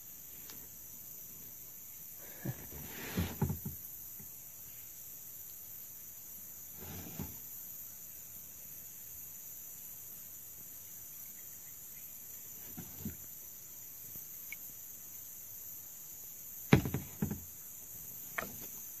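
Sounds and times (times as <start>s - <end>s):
sharp thumps: 16.7s - 17.4s
faint knocks: 16.7s - 17.5s.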